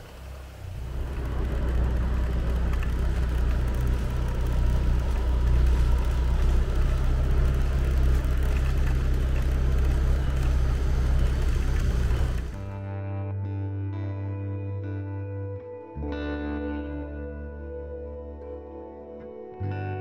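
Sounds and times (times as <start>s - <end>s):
motorcycle engine running: 0.0s - 12.8s
road and wind noise: 0.0s - 12.8s.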